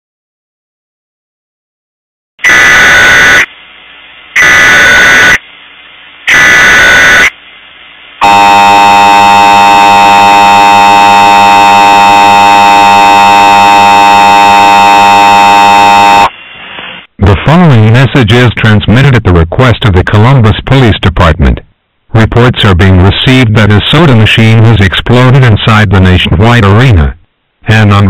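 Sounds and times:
two-tone attention signal: 8.2 - 16.3
warbling data tones: 8.2 - 16.4.

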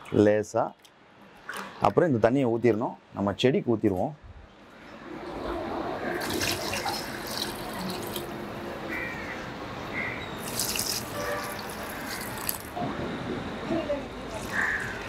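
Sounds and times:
water splashing onto soil: 6.2 - 8.4, 10.4 - 12.8.

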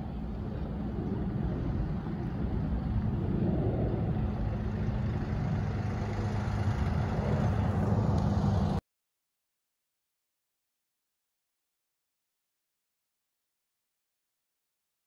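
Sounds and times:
low engine rumble: 0.0 - 8.8.

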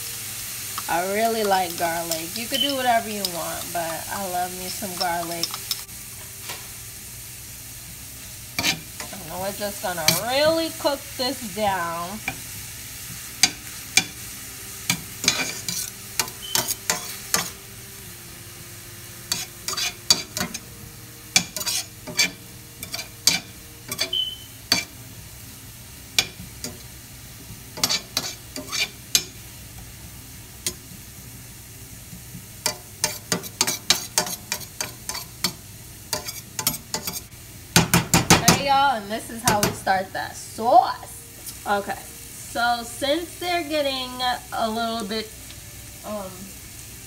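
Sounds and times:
onions sizzling in butter: 0.0 - 47.0
metal spoon scraping a pan: 1.2 - 5.9, 8.5 - 10.7, 13.2 - 17.6, 19.2 - 20.7, 21.3 - 25.0, 26.2 - 26.9, 27.7 - 29.4, 32.6 - 37.3.

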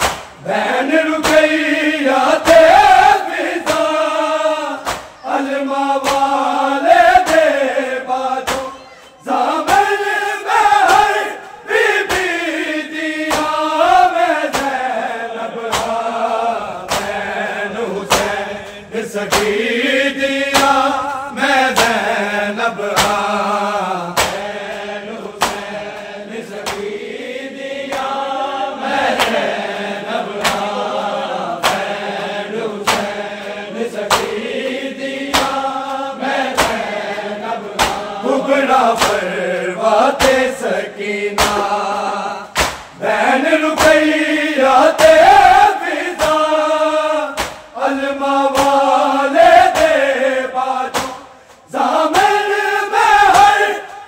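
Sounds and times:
chest beating slaps: 0.0 - 0.5, 1.2 - 19.7, 20.4 - 22.2, 22.8 - 27.1, 30.3 - 32.2, 32.8 - 34.6, 35.2 - 38.2, 38.9 - 39.4, 40.1 - 40.6, 41.3 - 43.0, 43.7 - 44.3, 44.9 - 46.6, 47.2 - 50.2, 50.8 - 52.6
crowd singing in chorus: 0.0 - 54.0
men chanting a lament: 0.0 - 54.0.

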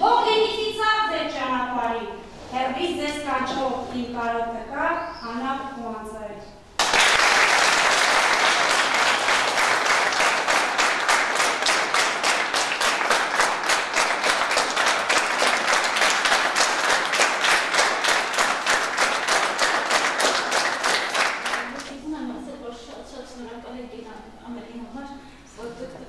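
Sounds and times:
audience clapping: 6.8 - 22.0.

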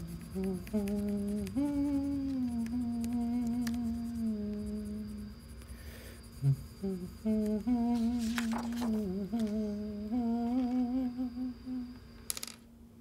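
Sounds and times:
person humming: 0.0 - 5.4, 6.3 - 12.0
paper rustling: 7.9 - 9.5.

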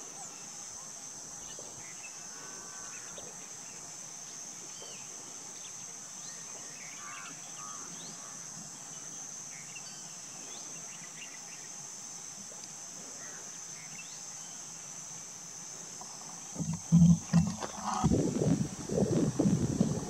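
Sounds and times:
high-pitched insect drone: 13.2 - 20.0.

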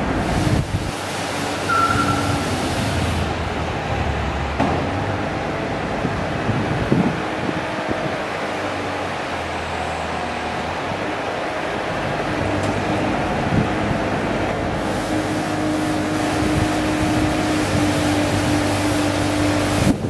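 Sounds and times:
diesel engine running: 0.0 - 20.0
short high squeak: 1.6 - 2.7.

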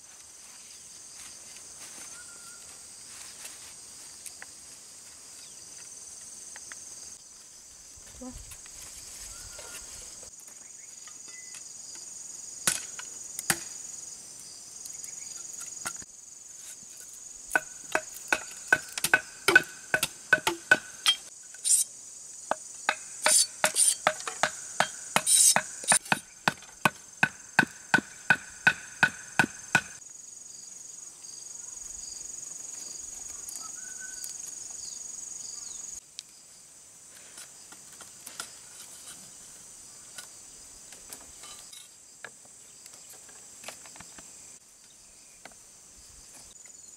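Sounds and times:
insects chirring: 0.0 - 46.9
ringing knocks on bamboo: 17.6 - 21.3, 22.5 - 30.0.

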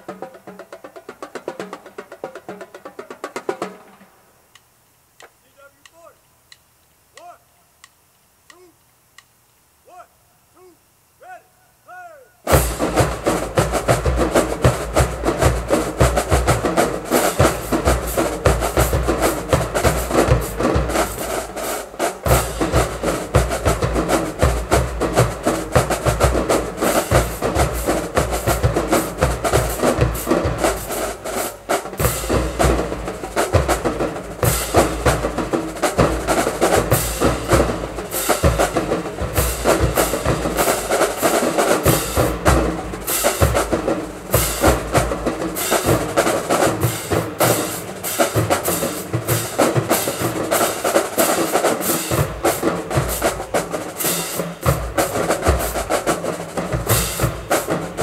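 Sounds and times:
marching drumline playing: 0.0 - 4.2, 12.4 - 58.0
drumstick clicks: 4.5 - 9.7.

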